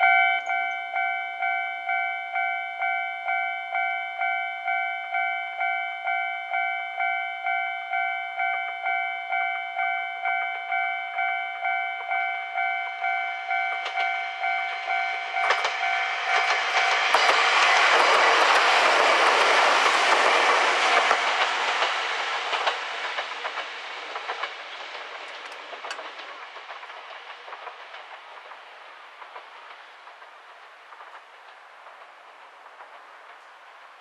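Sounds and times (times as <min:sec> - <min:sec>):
level crossing warning bell: 0:00.0 - 0:17.2
train wheels clacking on rail joints: 0:11.2 - 0:34.0.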